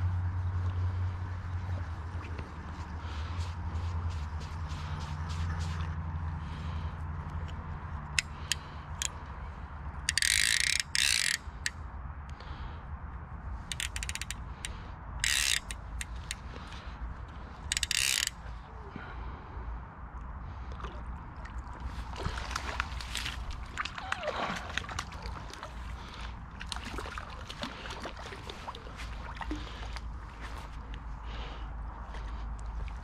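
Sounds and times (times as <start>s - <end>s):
reel clicks: 7.3s - 9.2s, 10.0s - 11.8s, 13.6s - 16.8s, 17.6s - 18.4s
fishing reel ratchet buzzing: 10.0s - 11.7s, 13.7s - 14.4s, 15.2s - 16.4s, 17.7s - 18.4s.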